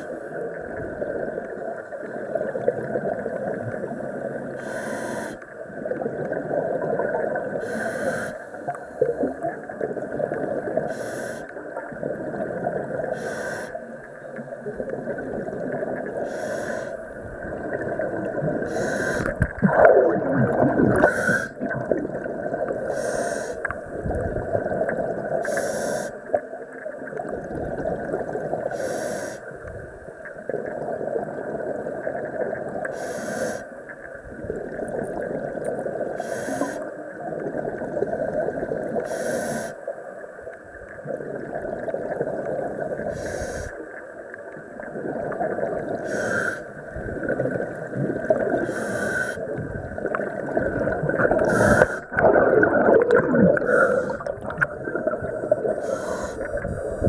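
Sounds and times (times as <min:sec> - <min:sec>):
regulator breath hiss: 0:04.6 - 0:05.4, 0:07.6 - 0:08.4, 0:10.9 - 0:11.5, 0:13.1 - 0:13.8, 0:16.2 - 0:17.0, 0:18.7 - 0:19.3, 0:21.1 - 0:21.6, 0:22.9 - 0:23.7, 0:25.4 - 0:26.2, 0:28.7 - 0:29.4, 0:32.9 - 0:33.7, 0:36.2 - 0:36.9, 0:39.0 - 0:39.8, 0:43.1 - 0:43.8, 0:46.0 - 0:46.7, 0:48.6 - 0:49.4, 0:55.8 - 0:56.5
bubbling of exhaled air: 0:14.7 - 0:25.5, 0:44.8 - 0:57.0
gurgling rush of bubbles: 0:17.2 - 0:22.9, 0:27.0 - 0:28.7, 0:44.7 - 0:46.1, 0:46.8 - 0:48.8, 0:49.4 - 0:57.0.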